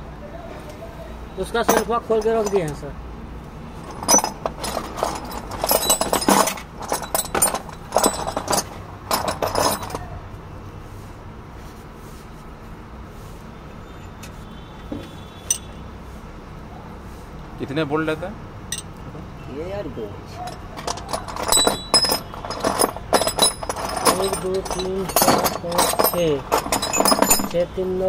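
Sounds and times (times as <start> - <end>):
metal hand tools clinking: 1.6 - 2.9, 3.8 - 10.1, 15.5 - 15.8, 20.4 - 27.8.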